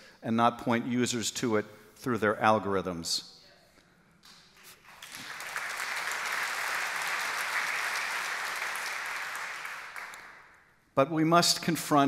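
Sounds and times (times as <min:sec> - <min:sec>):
audience applauding: 0:04.7 - 0:10.6.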